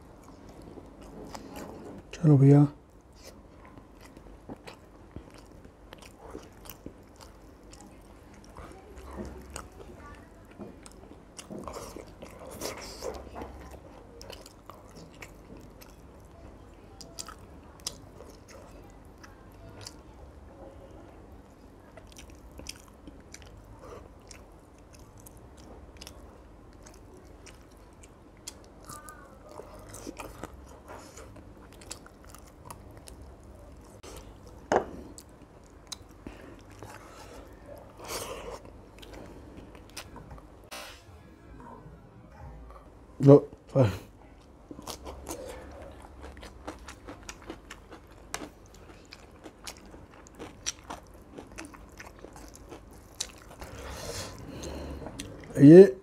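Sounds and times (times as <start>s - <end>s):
chewing: 0.0s - 2.1s, 2.9s - 40.5s, 44.3s - 55.6s
soft squishing: 0.0s - 40.7s.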